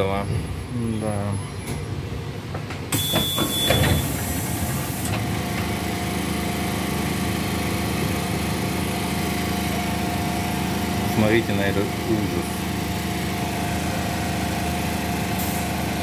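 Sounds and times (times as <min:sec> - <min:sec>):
train doors opening: 0:01.5 - 0:05.9
small petrol engine running: 0:05.3 - 0:16.0.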